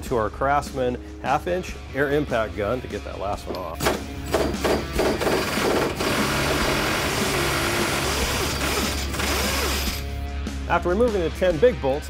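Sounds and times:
pneumatic impact gun hammering: 0:03.8 - 0:10.0.

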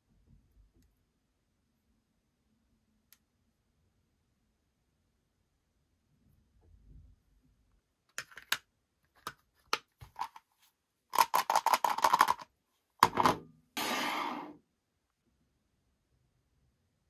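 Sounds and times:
plastic case clicking and rattling: 0:11.2 - 0:13.4.

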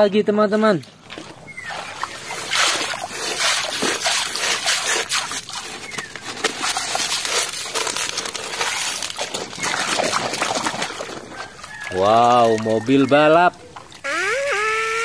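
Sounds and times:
shallow water sloshing: 0:00.6 - 0:14.1
wet gravel rattling and scraping: 0:00.8 - 0:14.0
gravel spilling into water: 0:02.4 - 0:11.1.

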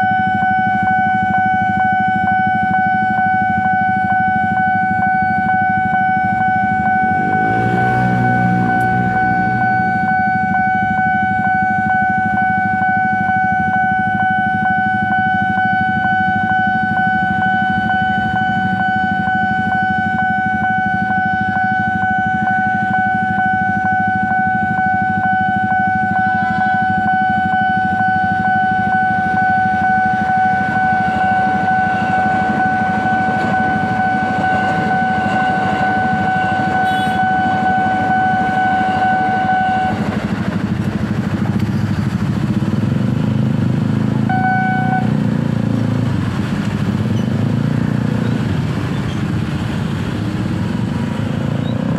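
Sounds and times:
level crossing alarm tone: 0:00.0 - 0:40.3, 0:44.2 - 0:45.3
electric train rumble: 0:00.3 - 0:23.4, 0:24.0 - 0:43.2
motorcycle engines idling: 0:05.4 - 0:10.6, 0:28.8 - 0:51.9.

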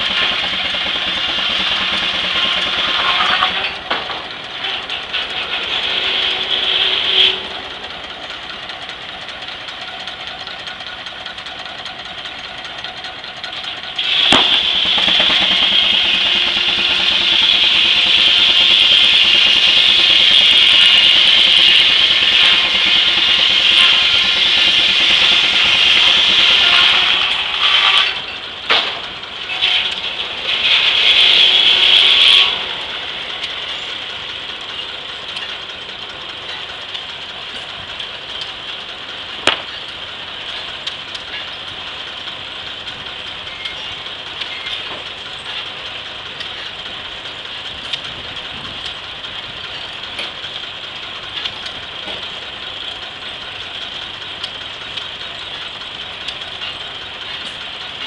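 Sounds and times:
circular saw blade whining: 0:00.0 - 0:58.0
sawmill rattling: 0:00.0 - 0:58.0
sharp knock: 0:39.5 - 0:39.7.

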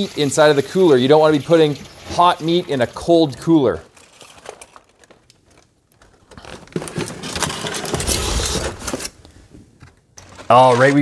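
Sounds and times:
aluminium foil crinkling: 0:03.7 - 0:09.2.

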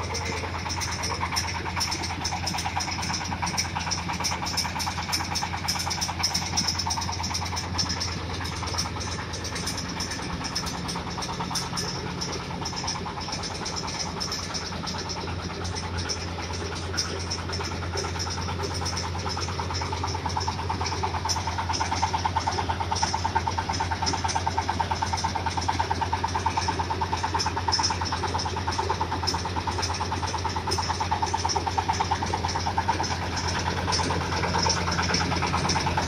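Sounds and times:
engine hum: 0:00.0 - 0:36.0
fast even ticking: 0:00.0 - 0:36.0.

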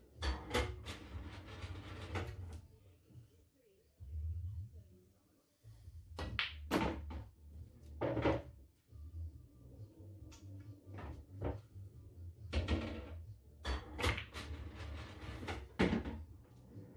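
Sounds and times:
pool balls clacking: 0:00.2 - 0:02.5, 0:12.6 - 0:16.2.

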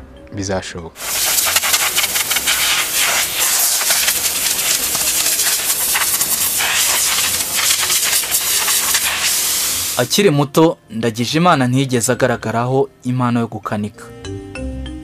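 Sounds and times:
compressed air hissing: 0:01.0 - 0:10.2.

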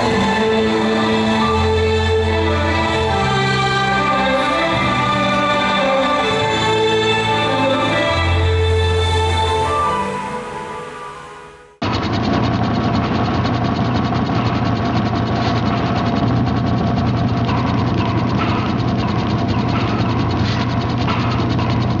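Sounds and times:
rapid mechanical clicking: 0:11.8 - 0:22.0.

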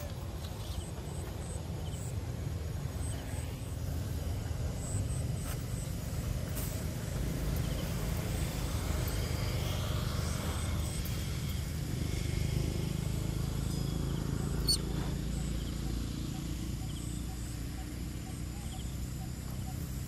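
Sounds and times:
low outdoor rumble: 0:00.0 - 0:20.0.

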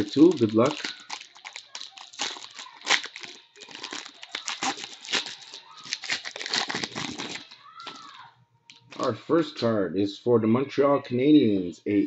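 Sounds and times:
foil wrapper crinkling: 0:00.0 - 0:09.1.

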